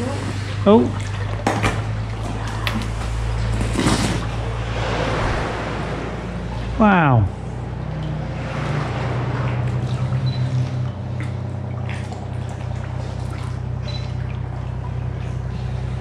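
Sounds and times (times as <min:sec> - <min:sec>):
small splashes: 0:00.0 - 0:16.0
steady low hum: 0:00.0 - 0:16.0
water dripping off paddle blades: 0:07.7 - 0:16.0.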